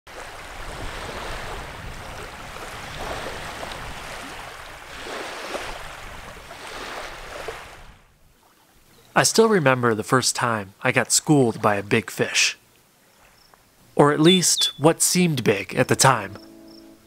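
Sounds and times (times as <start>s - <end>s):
small waves lapping: 0.1s - 9.2s
wind rumble on microphone: 0.2s - 8.1s.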